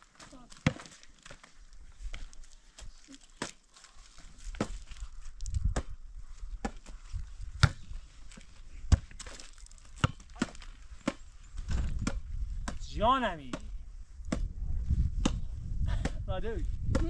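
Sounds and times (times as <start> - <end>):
hands slapping volleyball: 13.5 - 14.5, 15.2 - 16.2.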